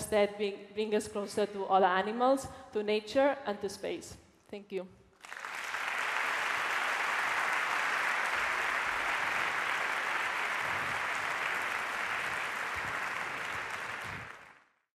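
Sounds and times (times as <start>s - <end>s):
audience applauding: 5.2s - 14.8s.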